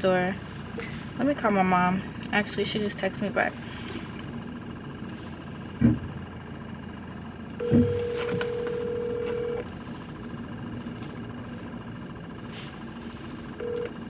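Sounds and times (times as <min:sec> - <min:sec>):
low car cabin hum: 0:00.0 - 0:14.0
telephone ringback tone: 0:07.6 - 0:09.6, 0:13.6 - 0:14.0.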